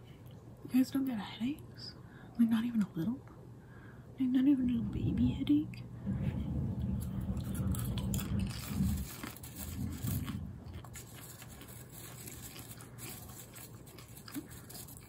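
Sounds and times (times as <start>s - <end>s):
popcorn being chewed: 7.1s - 15.0s
hand rustling through popcorn: 7.6s - 15.0s.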